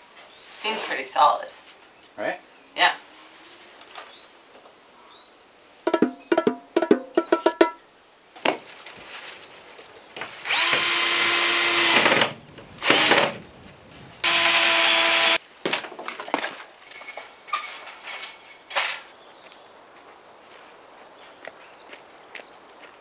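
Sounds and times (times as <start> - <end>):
power drill whining: 10.4 - 13.4, 14.2 - 15.4.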